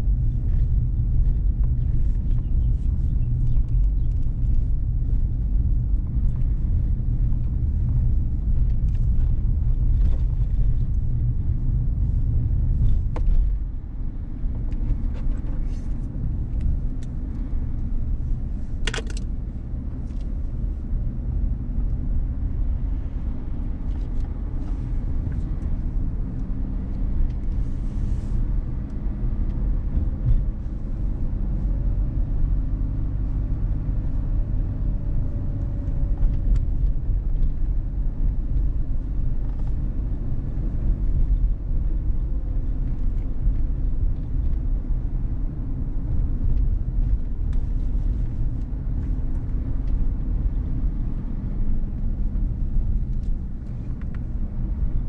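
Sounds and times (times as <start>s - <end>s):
car engine rumble: 0.0s - 55.0s
road noise: 0.0s - 55.0s.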